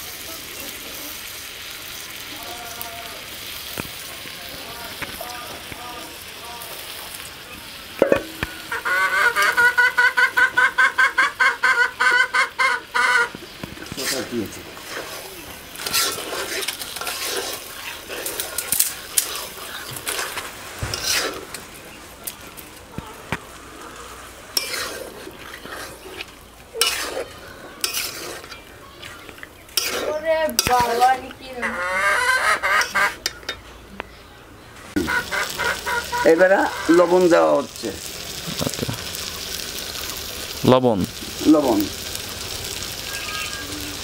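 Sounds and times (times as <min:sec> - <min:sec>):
chicken sizzling in a pan: 0:00.0 - 0:33.5, 0:34.8 - 0:44.0
chicken clucking: 0:08.1 - 0:13.5, 0:31.5 - 0:33.8, 0:34.9 - 0:37.2
metal spatula scraping pan: 0:13.9 - 0:21.7, 0:23.9 - 0:33.6.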